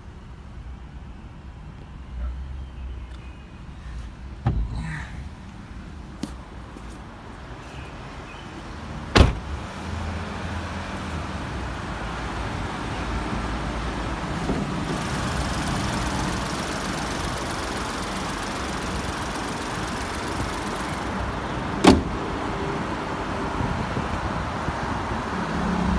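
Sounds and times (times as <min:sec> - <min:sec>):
car bonnet slamming shut: 0:04.4 - 0:04.8, 0:09.1 - 0:09.6, 0:21.8 - 0:22.2
car door slamming: 0:04.4 - 0:04.8, 0:09.1 - 0:09.6, 0:21.8 - 0:22.2
car engine idling: 0:14.2 - 0:22.2.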